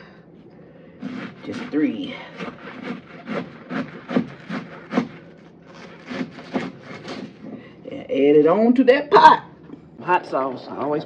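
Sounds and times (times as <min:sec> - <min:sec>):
knife slicing cabbage on board: 0:01.0 - 0:07.6.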